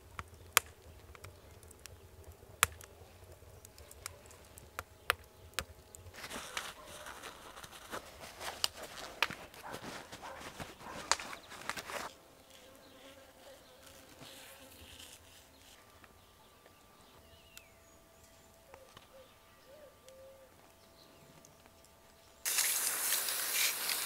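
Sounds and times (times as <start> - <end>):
flying insect buzzing: 12.4 - 15.7
loud rushing hiss: 22.5 - 24.0.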